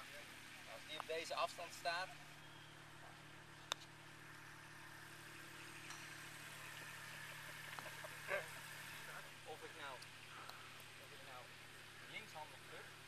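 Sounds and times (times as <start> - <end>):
putter striking golf ball: 2.5 - 9.2.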